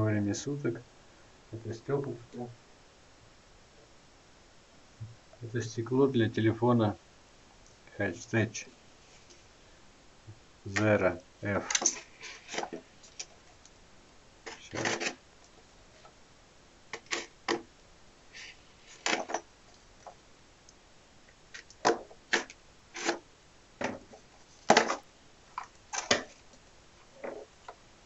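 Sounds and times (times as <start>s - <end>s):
knife slitting packing tape: 17.0s - 17.6s, 22.3s - 23.2s
plastic wrap rustling: 23.8s - 27.5s.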